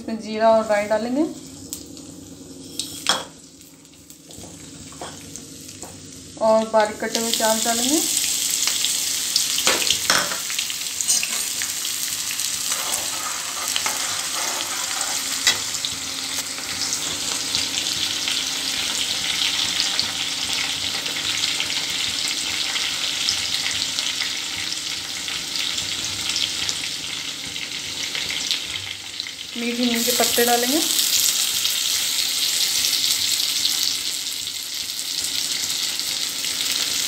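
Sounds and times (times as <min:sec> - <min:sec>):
onions sizzling in hot oil: 0:00.8 - 0:37.0
ladle scraping a pan: 0:12.6 - 0:15.7.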